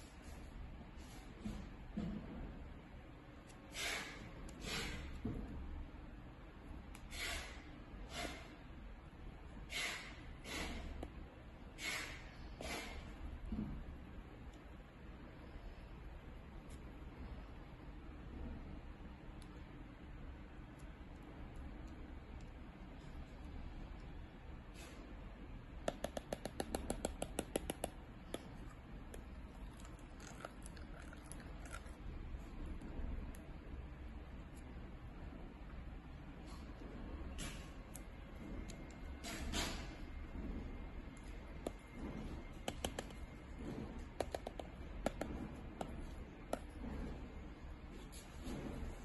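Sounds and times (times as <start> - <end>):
low steady hum: 0.0 - 49.0
stylus tapping on glass screen: 25.9 - 28.5, 44.2 - 46.7.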